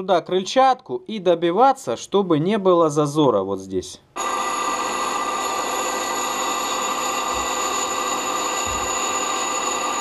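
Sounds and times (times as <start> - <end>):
metal lathe whining: 4.2 - 10.0.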